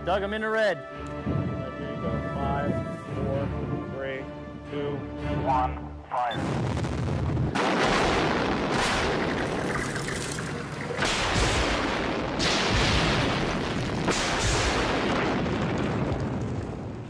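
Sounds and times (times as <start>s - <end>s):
dynamite blasts: 6.4s - 17.0s
rushing debris and dust: 6.4s - 17.0s.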